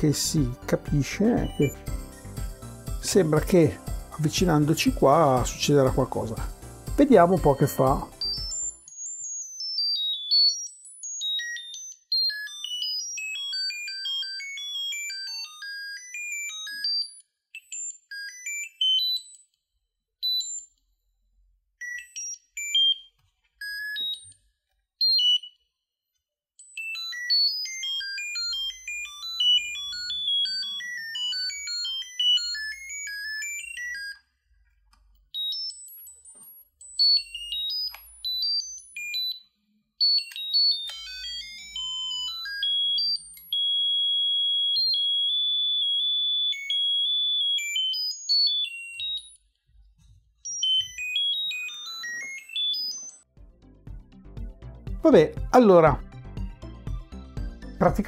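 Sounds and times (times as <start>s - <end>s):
piezo buzzer beeping: 0.1s - 17.2s, 26.8s - 34.2s, 35.4s - 49.4s, 50.5s - 53.2s.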